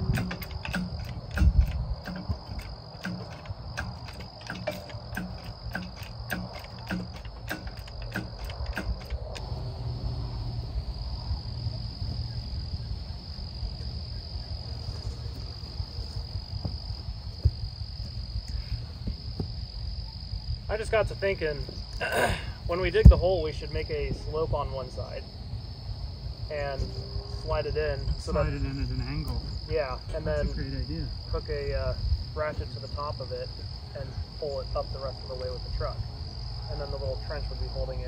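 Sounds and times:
high-pitched insect trilling: 0.0s - 22.1s.

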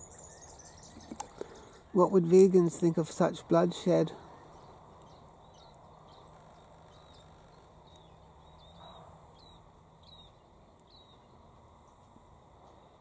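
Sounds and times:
bird chirping: 0.0s - 2.4s, 4.2s - 12.1s
low steady hum: 0.0s - 13.0s.

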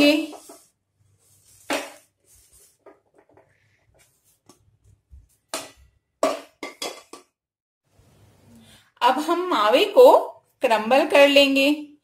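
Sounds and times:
light scratching in pan: 0.0s - 5.4s
pan knocking on plate: 5.5s - 7.3s.

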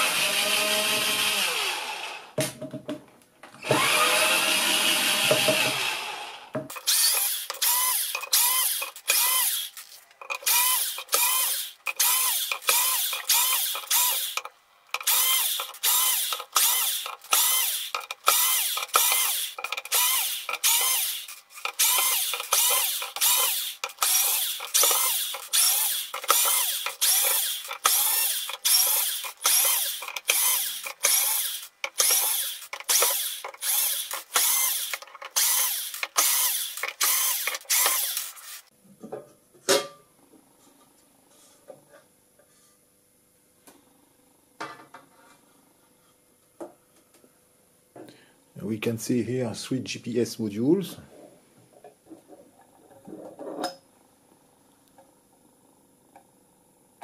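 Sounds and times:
power drill motor whirring: 0.0s - 2.3s, 3.6s - 38.7s.

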